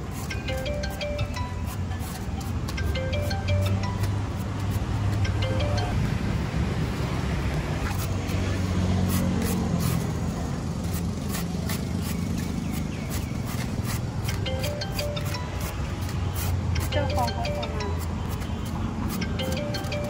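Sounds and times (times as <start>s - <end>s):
peeler scraping pear skin: 9.0s - 10.2s, 10.8s - 14.4s.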